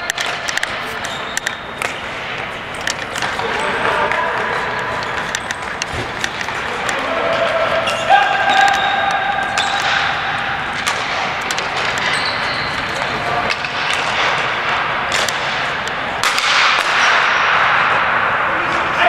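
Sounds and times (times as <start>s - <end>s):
players' voices: 0.2s - 19.0s
knocks of sticks and ball: 10.8s - 18.0s.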